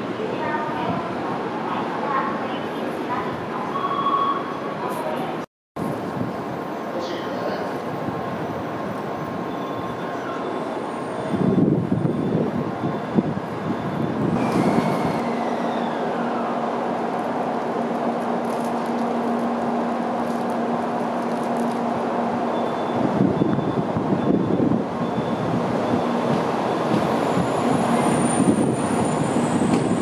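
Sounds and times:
train rolling rumble: 0:04.5 - 0:30.0
falling whine of train slowing: 0:07.7 - 0:30.0.

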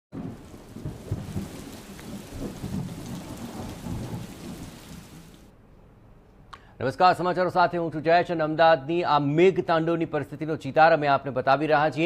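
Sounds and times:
heavy rain hissing: 0:00.2 - 0:05.5
thunder rumbling: 0:00.2 - 0:05.5.

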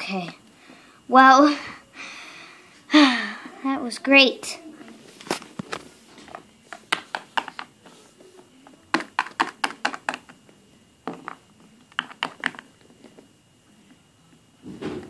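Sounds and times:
plastic figurines clicking on wood floor: 0:06.7 - 0:07.7, 0:08.9 - 0:10.4, 0:11.0 - 0:12.7.

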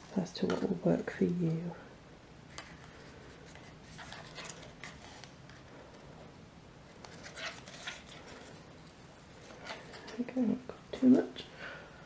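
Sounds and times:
rustling and scraping of cardstock: 0:02.5 - 0:05.7, 0:06.9 - 0:08.7.

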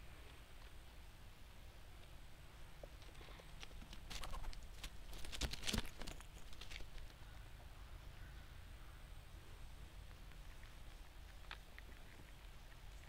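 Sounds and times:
squirrel scampering over dry leaves: 0:02.8 - 0:07.3.

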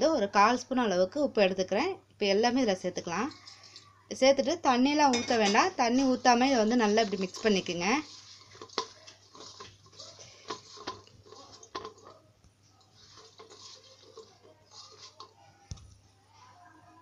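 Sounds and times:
food squishing and rustling: 0:03.0 - 0:04.0, 0:05.3 - 0:16.1.

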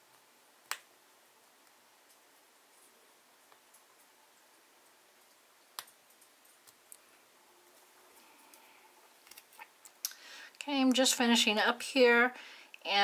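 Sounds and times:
film peeling clicks: 0:09.2 - 0:10.2.

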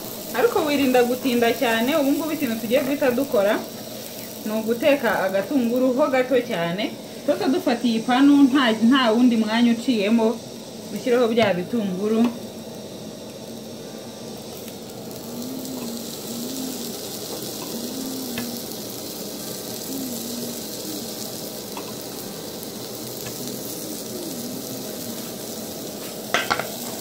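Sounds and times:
onions sizzling in frying pan: 0:00.0 - 0:27.0.

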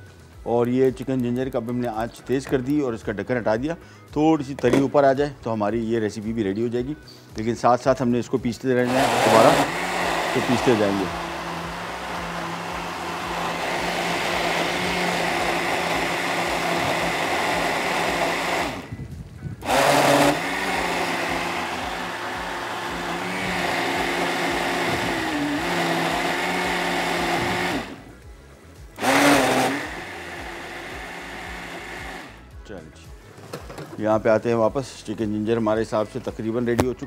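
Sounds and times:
blender motor running: 0:08.8 - 0:19.0, 0:19.6 - 0:28.3, 0:28.9 - 0:32.5.

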